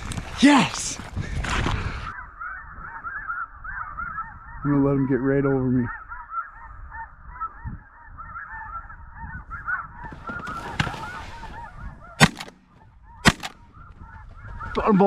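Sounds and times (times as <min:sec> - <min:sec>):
geese honking: 0:02.4 - 0:15.0
shotgun shots: 0:12.2 - 0:12.6, 0:13.2 - 0:13.6.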